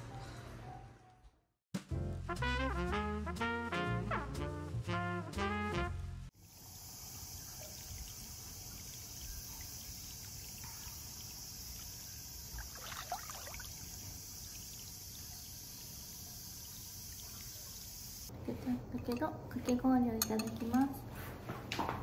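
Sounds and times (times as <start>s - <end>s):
insects chorus: 6.4s - 18.3s
faint water trickle: 6.4s - 20.8s.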